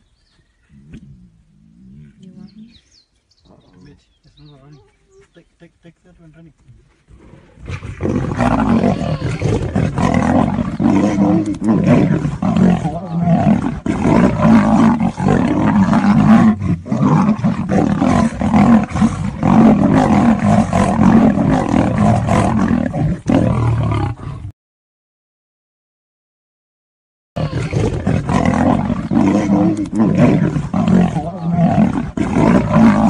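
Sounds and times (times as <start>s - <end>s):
big cats roaring: 7.2s - 24.5s, 27.4s - 33.0s.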